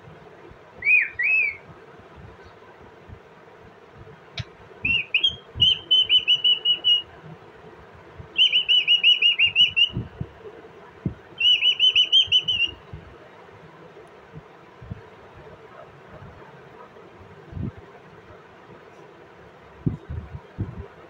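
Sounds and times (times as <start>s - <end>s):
parakeet warbling whistles: 0.8s - 1.6s, 4.8s - 7.0s, 8.4s - 10.0s, 11.4s - 12.8s.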